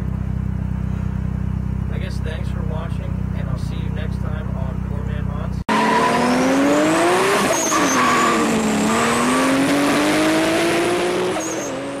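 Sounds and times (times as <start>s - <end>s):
car engine revving hard: 5.7s - 12.0s.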